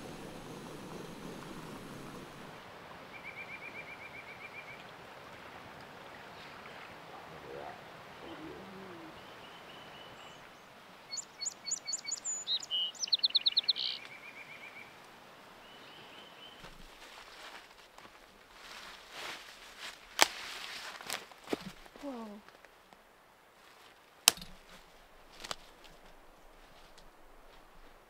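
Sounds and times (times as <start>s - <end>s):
river rushing: 0.0s - 11.2s
songbirds singing: 6.3s - 15.0s.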